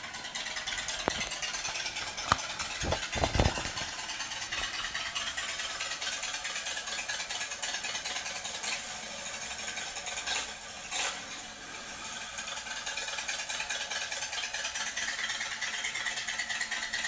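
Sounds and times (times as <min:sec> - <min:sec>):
sharp paper clicks: 0:00.4 - 0:06.2
book page turning: 0:00.7 - 0:05.1
paper rustle and flap: 0:00.7 - 0:05.1.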